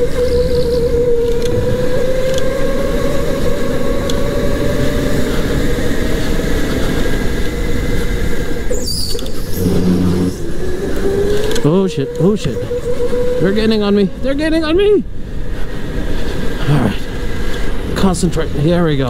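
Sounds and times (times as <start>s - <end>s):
electric go-kart motor whining: 0.0s - 16.6s
steady rumbling noise: 0.0s - 19.0s
short high squeal: 8.7s - 10.6s.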